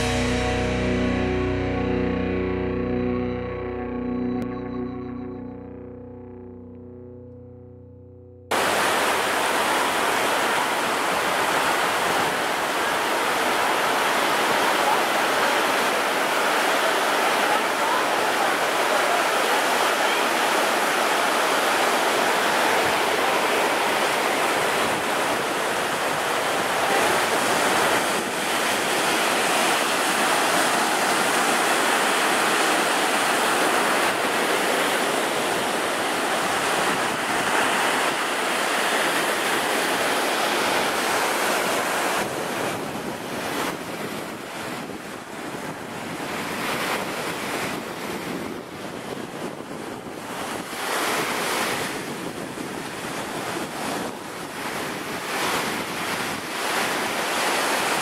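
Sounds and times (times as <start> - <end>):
river rapids rushing: 8.5 - 47.9, 52.8 - 58.0
waves breaking on beach: 8.5 - 58.0
wind gusting on microphone: 19.7 - 58.0.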